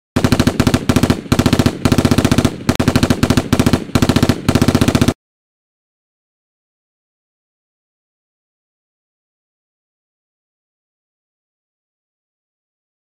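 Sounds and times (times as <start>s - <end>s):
machine-gun fire: 0.2s - 5.2s.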